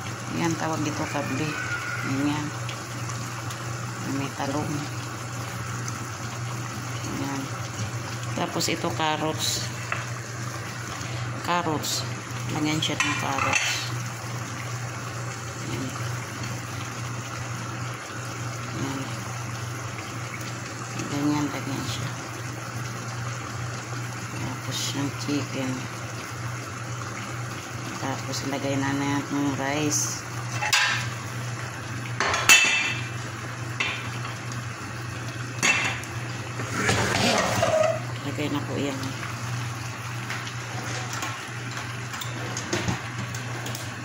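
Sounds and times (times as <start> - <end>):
kitchen appliance hiss and hum: 0.0 - 44.0
utensil clinking against pots: 12.9 - 13.9.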